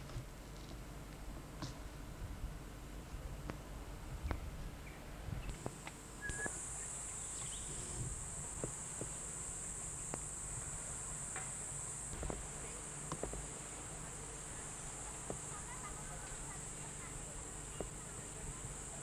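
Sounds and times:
insects shrilling: 0:06.2 - 0:19.0.

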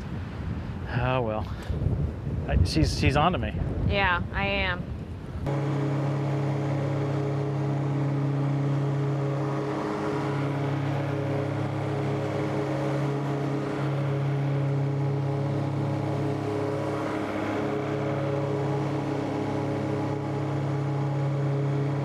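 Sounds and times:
tractor and rotary mower droning: 0:05.4 - 0:22.0.

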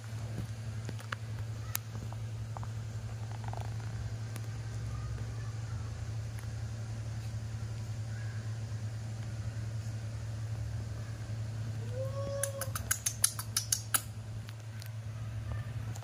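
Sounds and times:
steady low hum: 0:00.0 - 0:16.0
sharp clicks: 0:12.4 - 0:14.9.

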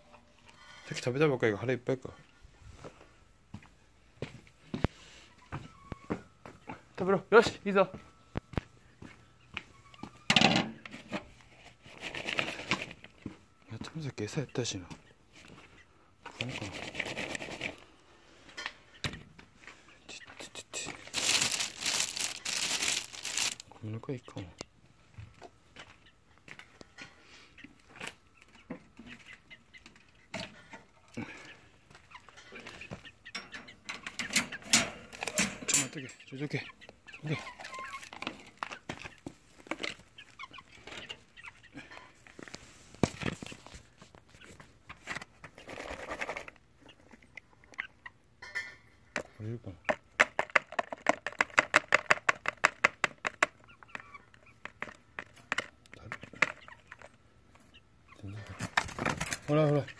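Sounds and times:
hens clucking softly: 0:36.5 - 0:48.5.

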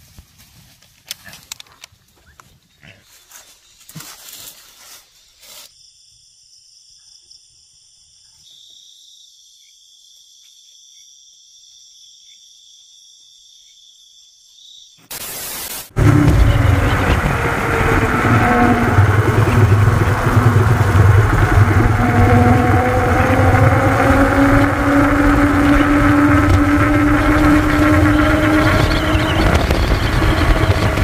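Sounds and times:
rustling in dry undergrowth: 0:00.0 - 0:05.7
night insects chorus: 0:02.1 - 0:15.2, 0:16.3 - 0:31.0.

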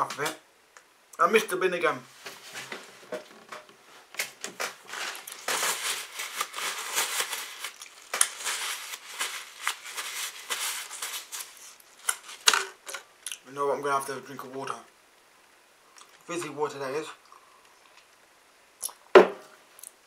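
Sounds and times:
paper tissue crinkling: 0:03.9 - 0:12.6.

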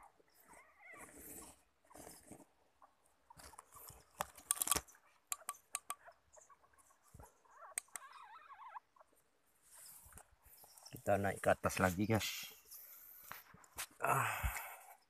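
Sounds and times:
sharp clicks: 0:04.2 - 0:06.0, 0:07.7 - 0:08.1
high wavering squeaky cry: 0:07.4 - 0:08.9.

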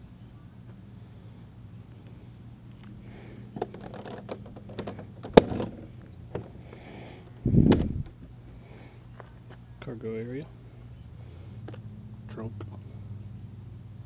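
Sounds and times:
steady low hum: 0:00.0 - 0:14.0
trunk lid thump: 0:07.5 - 0:08.0.

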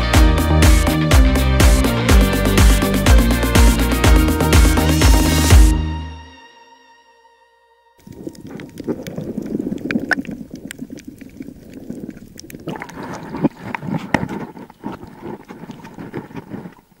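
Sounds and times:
water sloshing underwater: 0:08.0 - 0:17.0
water splashing: 0:08.0 - 0:17.0.

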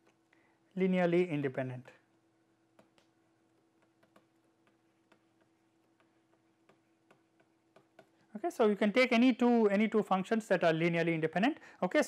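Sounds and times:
faint steady hum: 0:00.0 - 0:12.0
stylus tapping on tablet screen: 0:02.6 - 0:08.3.

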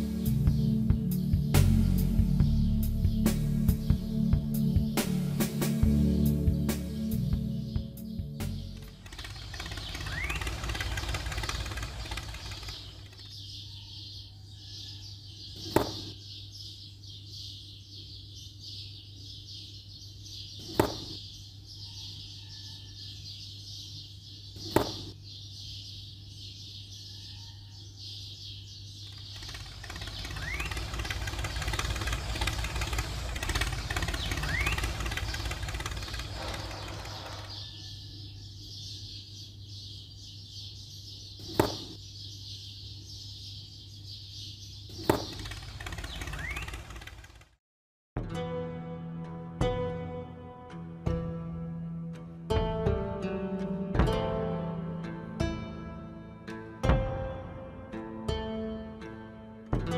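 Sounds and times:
faint bird chirps: 0:07.1 - 0:47.1
steady low hum: 0:29.1 - 0:37.7.

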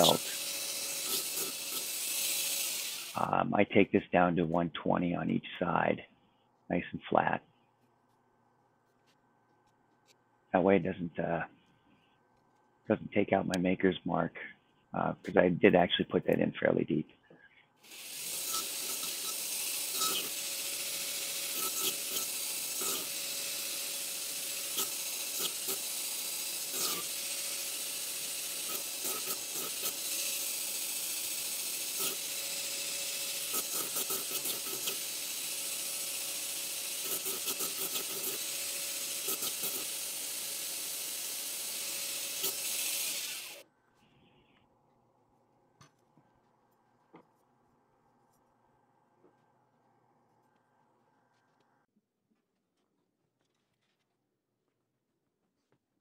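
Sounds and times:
belt grinder hissing on steel: 0:00.0 - 0:03.3, 0:17.8 - 0:43.6
grinder motor hum: 0:00.0 - 0:03.4, 0:17.8 - 0:43.6.

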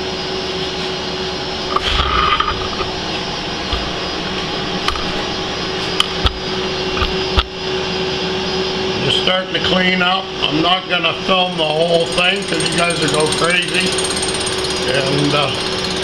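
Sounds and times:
constant hum: 0:00.0 - 0:15.6
milling machine cutting: 0:00.6 - 0:08.0, 0:10.4 - 0:16.0.

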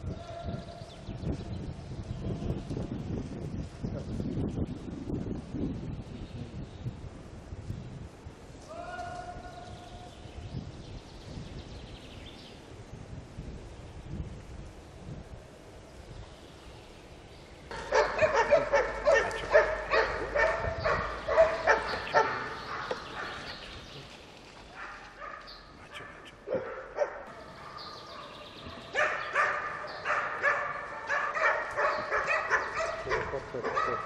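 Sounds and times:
hunting dogs baying and yelping: 0:17.7 - 0:23.7, 0:24.7 - 0:34.0.

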